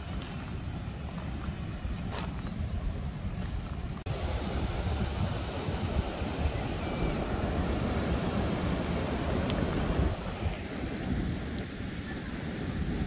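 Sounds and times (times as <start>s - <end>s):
wind on microphone: 0.0s - 13.0s
faint high chirps: 1.4s - 4.0s
water rushing over dam: 4.1s - 13.0s.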